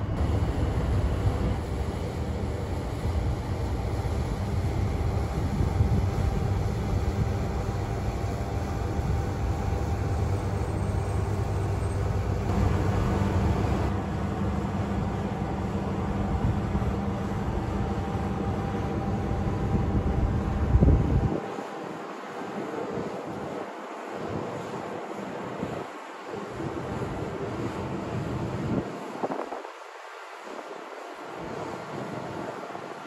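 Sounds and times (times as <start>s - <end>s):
ship diesel engine humming: 0.0s - 20.8s.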